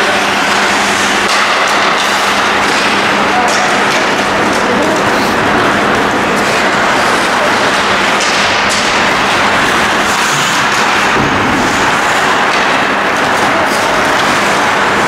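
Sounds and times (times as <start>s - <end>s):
skates scraping ice: 8.7s - 14.6s.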